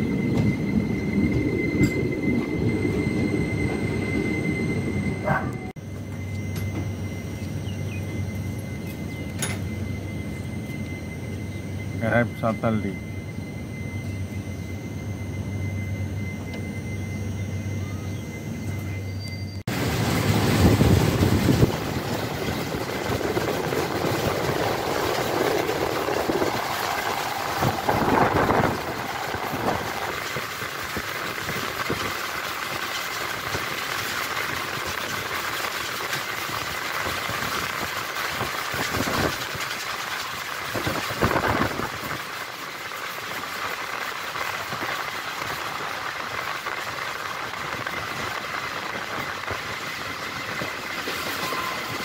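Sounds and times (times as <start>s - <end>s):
train running on rails: 0.0s - 52.0s
train clunks: 8.8s - 9.7s.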